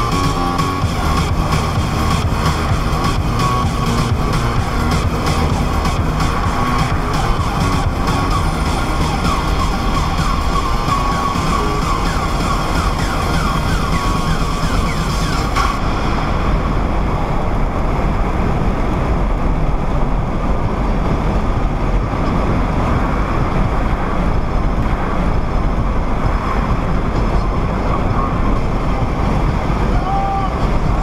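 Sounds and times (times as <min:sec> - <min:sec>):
short rising tones: 0:00.0 - 0:16.2
pickup driving at highway speed: 0:00.0 - 0:31.0.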